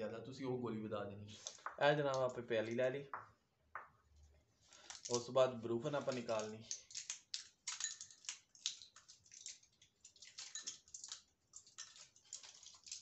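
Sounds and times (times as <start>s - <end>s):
foil blister pack crackling: 5.9s - 13.0s.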